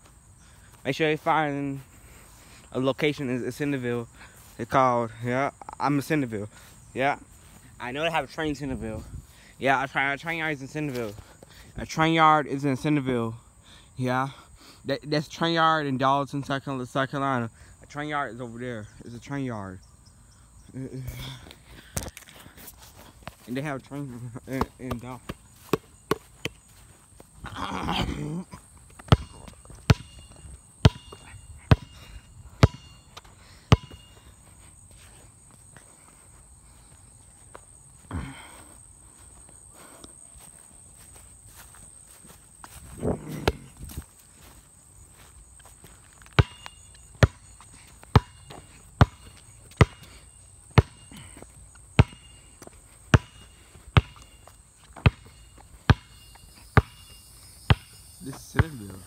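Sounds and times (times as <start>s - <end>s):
footsteps on lawn: 0.0s - 12.1s, 21.2s - 59.0s
basketball bouncing on asphalt: 24.5s - 27.3s, 28.8s - 34.3s, 43.4s - 44.0s, 46.2s - 59.0s.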